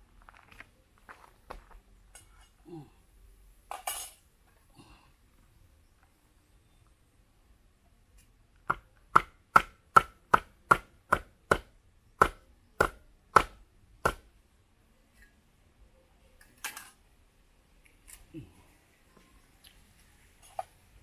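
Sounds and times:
machete chopping on wooden board: 8.7 - 14.2.

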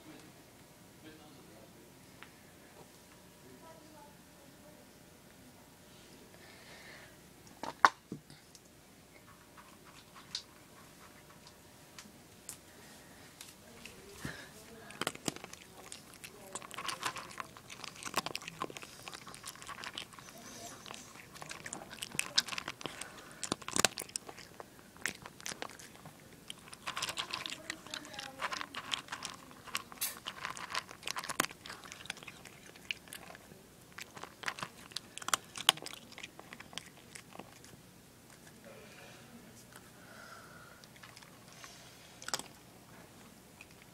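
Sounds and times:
cat crunching dry kibble: 9.2 - 11.5, 13.7 - 38.6, 40.8 - 42.7, 43.5 - 43.9.

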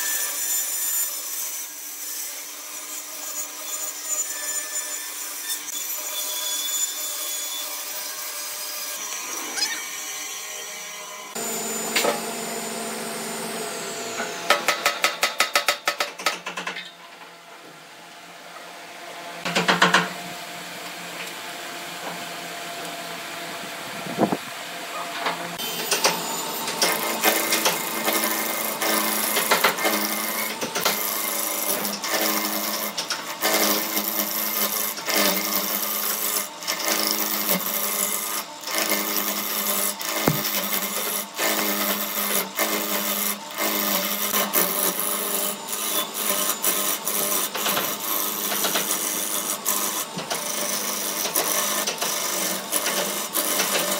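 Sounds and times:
wood lathe humming: 11.1 - 14.6, 25.6 - 53.9
gouge cutting spinning wood: 11.4 - 14.7, 25.6 - 53.9.

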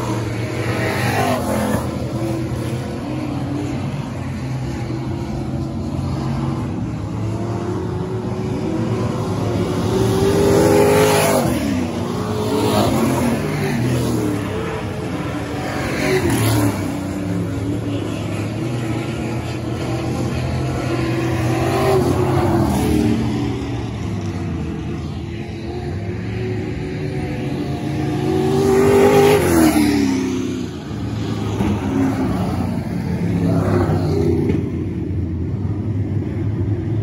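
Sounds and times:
race car engines: 0.0 - 37.0
race cars passing close: 0.0 - 37.0.

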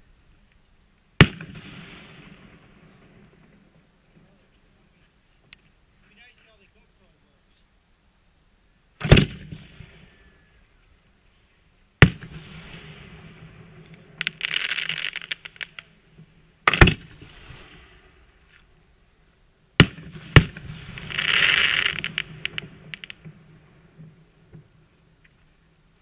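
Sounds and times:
firework bangs: 1.2 - 4.4, 9.0 - 10.2, 12.0 - 18.5, 19.8 - 24.8
firework crackles: 9.0 - 10.6, 12.0 - 18.9, 19.7 - 25.2
firework hissing: 12.0 - 16.0, 16.8 - 18.4, 20.4 - 23.2.

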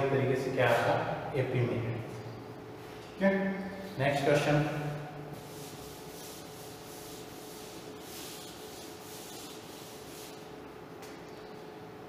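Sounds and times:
duster wiping a chalkboard: 4.0 - 10.7.

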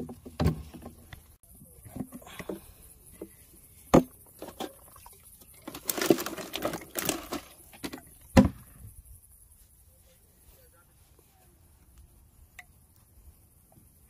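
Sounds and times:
cans and bottles clattering: 4.0 - 8.5.

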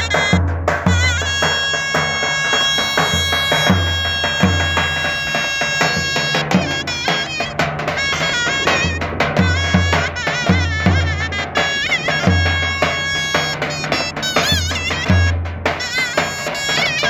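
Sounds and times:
zurna playing runs: 0.0 - 17.0
bass drum strokes: 7.6 - 12.8.

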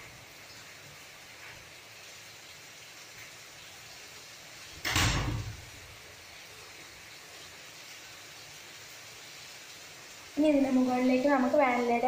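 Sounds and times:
sharp knock: 4.8 - 5.6.

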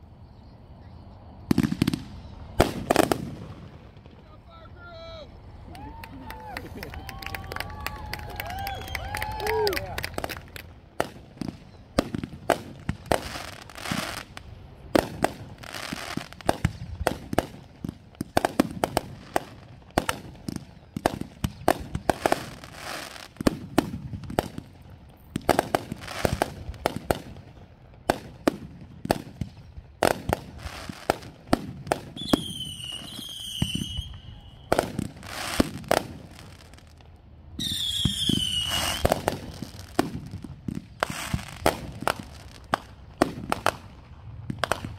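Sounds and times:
shrill firework whistles: 0.3 - 3.4, 5.5 - 9.9, 32.1 - 36.8, 37.6 - 40.0, 41.0 - 41.7
fireworks bursting: 0.7 - 44.9.

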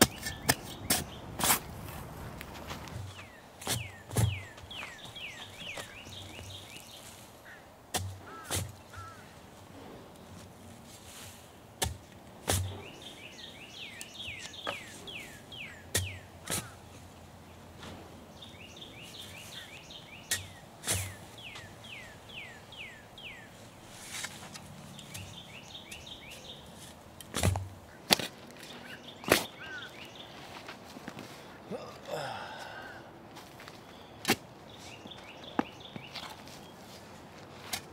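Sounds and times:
bird singing: 0.0 - 1.3, 3.1 - 9.4, 12.5 - 17.6, 18.2 - 23.8, 24.9 - 26.9, 27.6 - 30.6, 33.7 - 36.9
shovel chopping into soil: 0.0 - 1.7, 2.9 - 6.8, 7.9 - 9.2, 11.8 - 13.0, 15.8 - 16.8, 20.2 - 21.7, 26.8 - 28.6, 29.2 - 29.6, 34.2 - 34.4.

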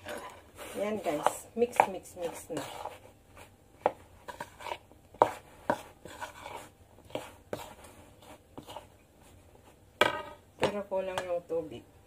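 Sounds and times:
spoon scraping metal bowl: 0.0 - 3.5, 4.2 - 8.9.

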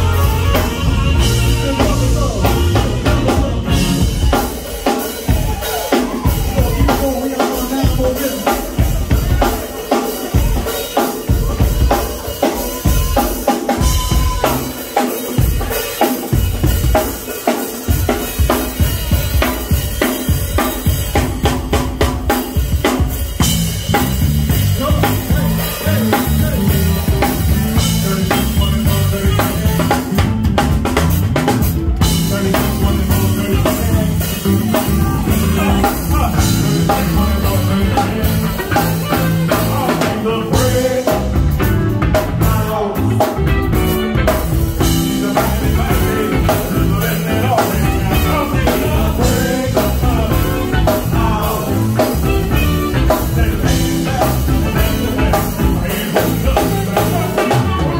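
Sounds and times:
electric bass: 0.0 - 9.6, 17.9 - 57.9
drum kit beat: 0.0 - 57.9
keyboard: 0.0 - 57.9.

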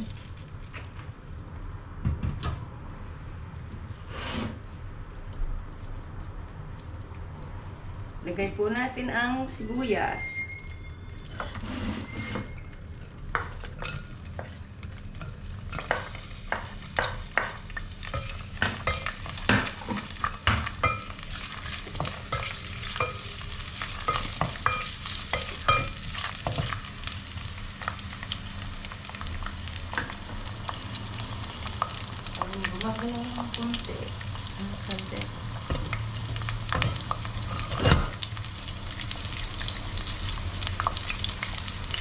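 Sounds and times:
onions sizzling in oil: 13.4 - 42.0.

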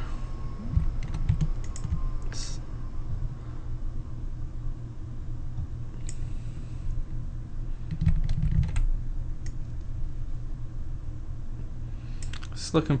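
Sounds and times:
steady low hum: 0.0 - 13.0
computer mouse and keyboard clicks: 0.7 - 2.0, 12.2 - 12.5.

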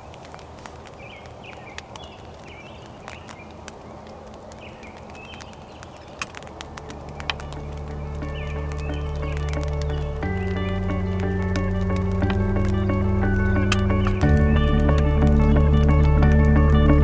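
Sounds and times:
sharp clicks: 0.0 - 17.0
small birds chirping: 0.0 - 17.0
music: 7.2 - 17.0.

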